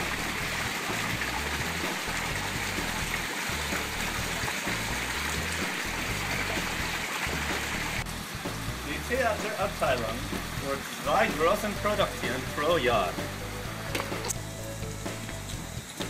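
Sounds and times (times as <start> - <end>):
background music with bass line: 0.0 - 16.0
steady rushing hiss: 0.0 - 16.0.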